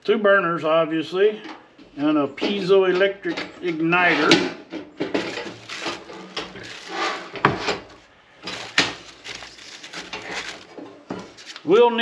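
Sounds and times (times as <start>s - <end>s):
packing material rustling: 5.1s - 12.0s.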